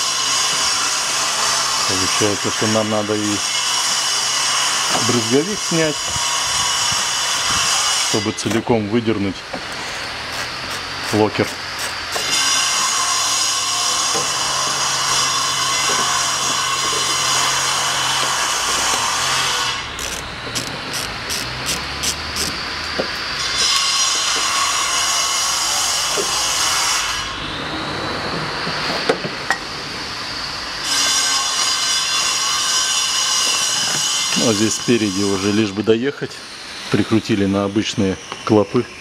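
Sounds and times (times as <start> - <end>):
power screwdriver running: 14.0 - 24.5.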